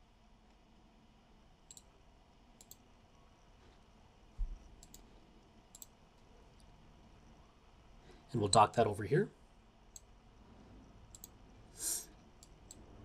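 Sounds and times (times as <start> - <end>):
faint computer mouse clicks: 1.7 - 1.9, 2.6 - 2.8, 4.8 - 5.1, 5.7 - 6.0, 11.1 - 11.4.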